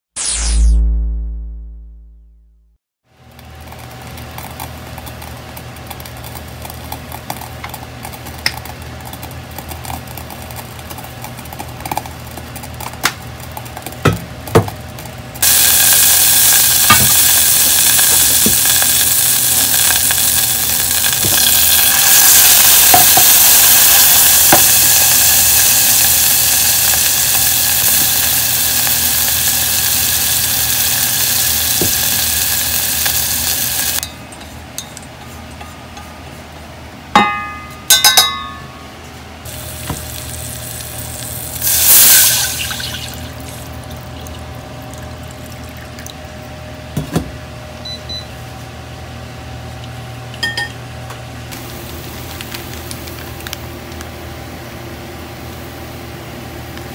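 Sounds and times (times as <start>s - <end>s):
induction hob humming: 3.1s - 56.9s
food sizzling in hot oil: 15.4s - 34.0s, 39.5s - 45.6s, 51.6s - 53.2s.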